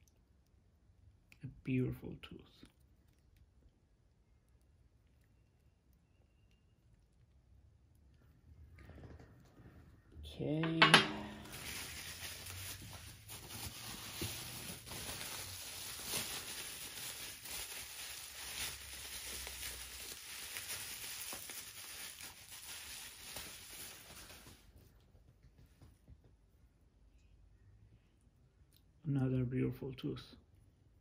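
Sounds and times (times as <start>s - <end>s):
packing material rustling: 11.1s - 24.9s.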